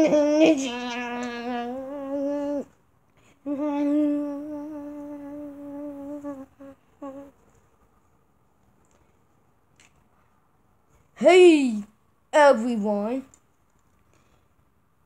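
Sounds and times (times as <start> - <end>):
child humming: 0.0 - 2.7, 3.4 - 7.4.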